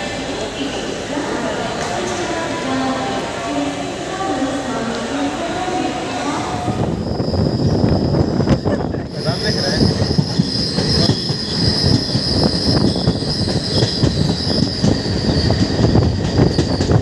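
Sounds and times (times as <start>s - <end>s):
train wheels rattling on rails: 6.4s - 17.0s
high-pitched wheel squeal: 6.8s - 17.0s.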